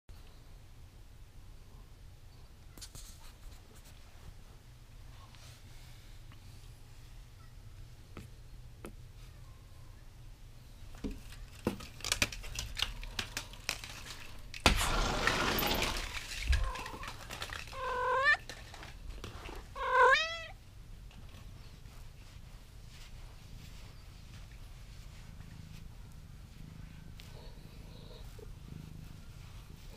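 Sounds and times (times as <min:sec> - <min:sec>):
window blinds rustling and clicking: 0:11.2 - 0:19.6
cat meowing: 0:16.6 - 0:18.4, 0:19.7 - 0:20.6.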